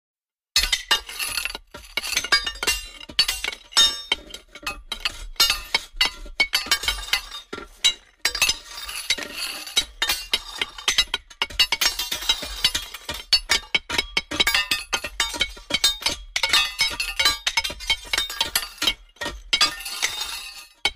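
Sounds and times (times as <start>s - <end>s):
metal clanking against rocks: 0.6s - 20.9s.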